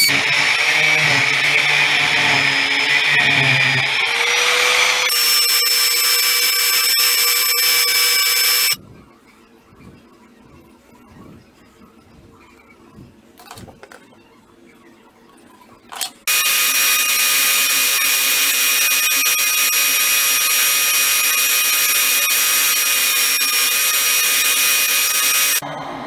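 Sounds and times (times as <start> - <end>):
belt sander whining: 0.0 - 8.8, 16.3 - 25.6.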